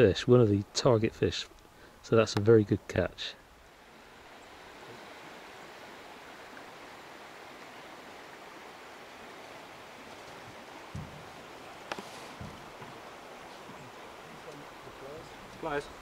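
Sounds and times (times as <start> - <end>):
river water flowing: 0.0 - 16.0
soft low thump: 10.9 - 11.3, 11.9 - 13.0.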